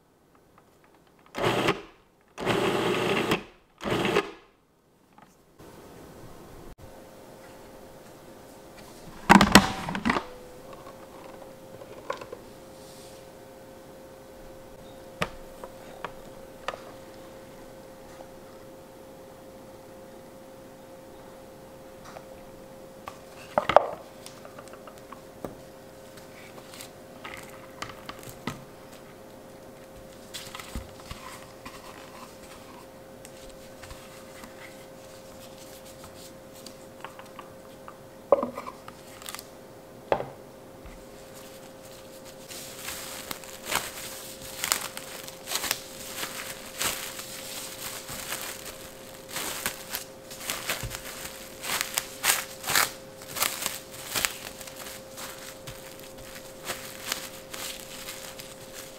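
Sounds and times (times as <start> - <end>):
faint steady hum: 0.0 - 58.9
cling wrap crinkling: 41.2 - 58.9.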